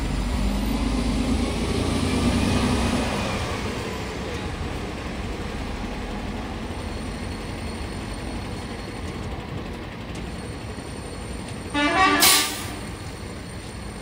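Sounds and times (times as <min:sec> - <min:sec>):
engines and traffic rumble: 0:00.0 - 0:14.0
vehicle horn blast: 0:11.7 - 0:12.9.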